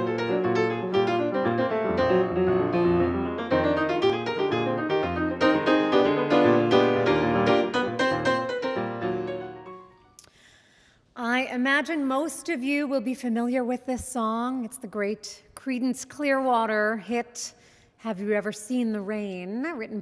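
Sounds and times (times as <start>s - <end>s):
solo piano music: 0.0s - 10.1s.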